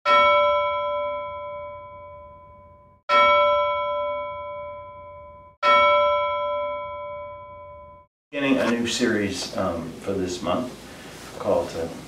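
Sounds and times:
bell ringing: 0.1 - 8.1.

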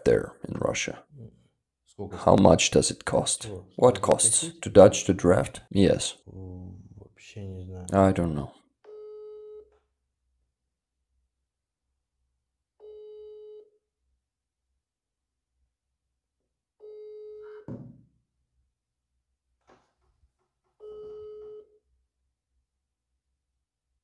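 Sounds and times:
phone ringback beeps: 8.9 - 9.7, 20.8 - 21.8
short thump: 17.7 - 18.1.

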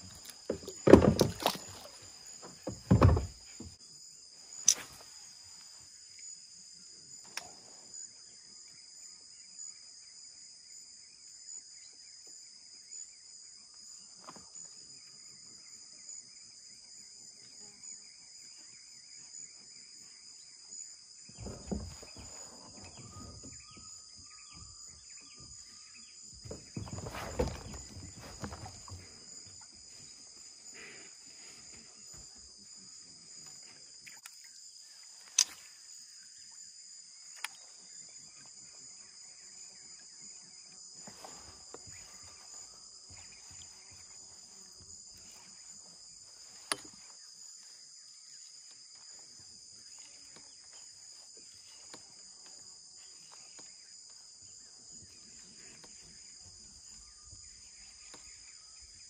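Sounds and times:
crickets chirping: 0.0 - 59.0.

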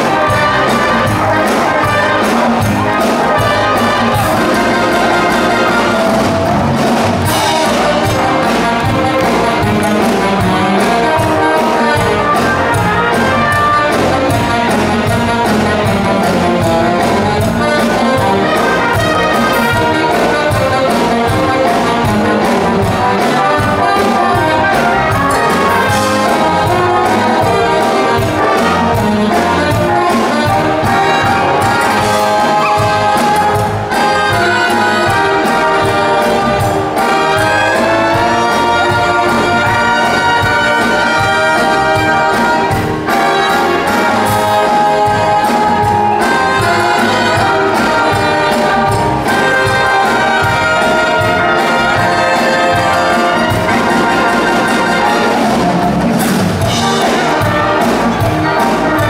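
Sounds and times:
brass-led orchestral music: 0.0 - 59.0.

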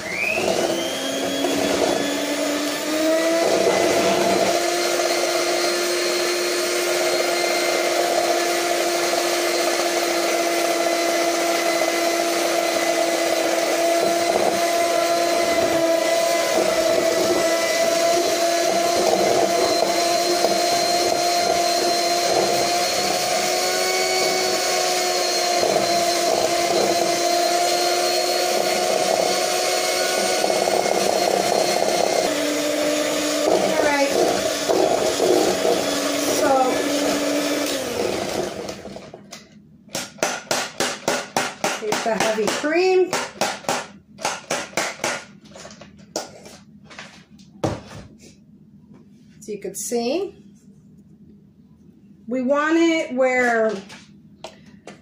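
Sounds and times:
electric hand mixer whipping cream: 0.0 - 39.3.

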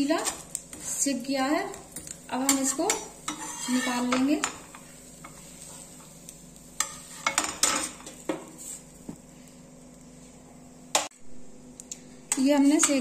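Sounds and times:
faint sizzle from hot pan: 0.0 - 13.0
steel spatula clinking and scraping: 2.0 - 5.8.

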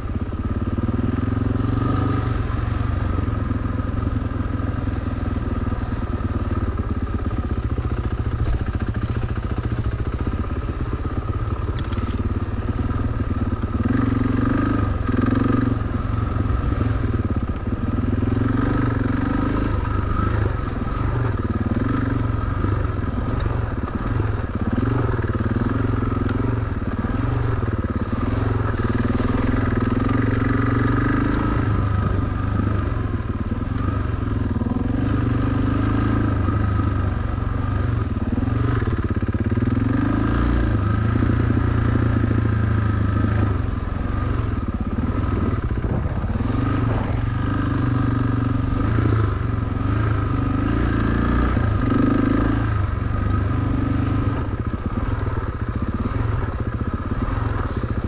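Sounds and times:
motorcycle engine revving: 0.0 - 58.0.

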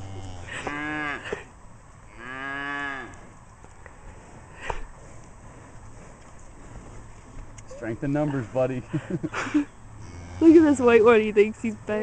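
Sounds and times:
cattle mooing: 0.0 - 1.4, 2.1 - 3.2, 10.0 - 11.0.

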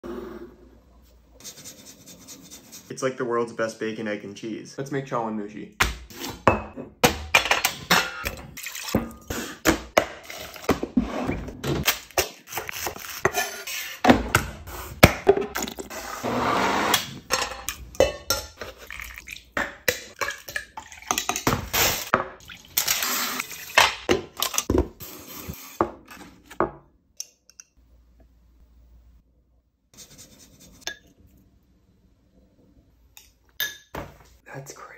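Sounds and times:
dishes and utensils clinking: 17.3 - 22.2
liquid pouring: 18.7 - 19.6.

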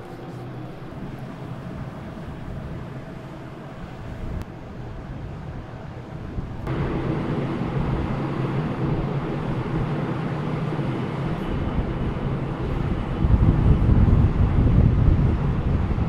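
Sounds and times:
ferry engines humming: 0.0 - 16.0
wind buffeting microphone: 0.0 - 16.0.

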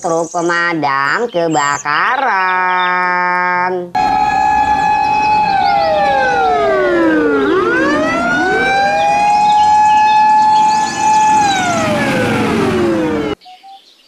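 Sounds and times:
fire engine siren wailing: 4.0 - 13.4.

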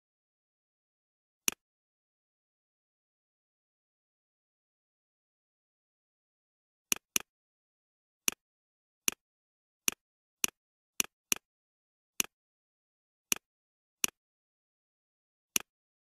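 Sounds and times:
computer mouse clicks: 6.9 - 7.3, 15.5 - 15.7.

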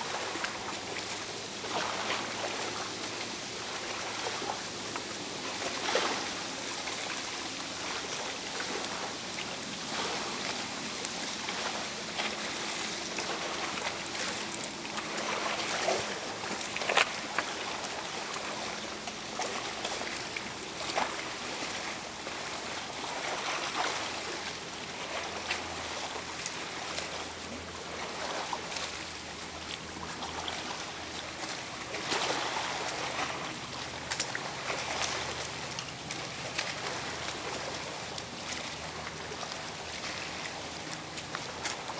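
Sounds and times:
lake water lapping: 0.0 - 41.9.

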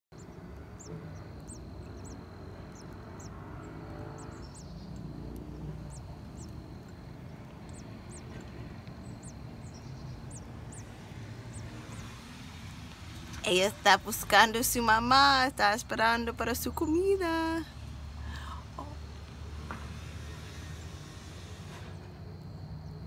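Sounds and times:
nestlings peeping: 0.1 - 19.6
low background rumble: 0.2 - 21.8.

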